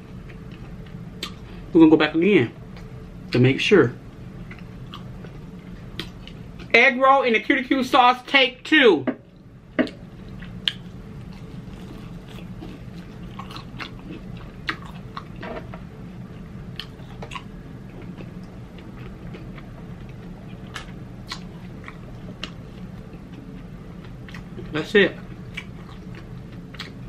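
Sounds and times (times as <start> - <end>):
person chewing: 4.4 - 6.4, 10.3 - 15.4, 16.7 - 27.0.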